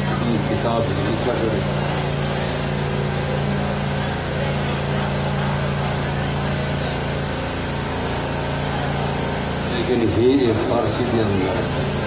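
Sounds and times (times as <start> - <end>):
machine humming: 0.0 - 12.0.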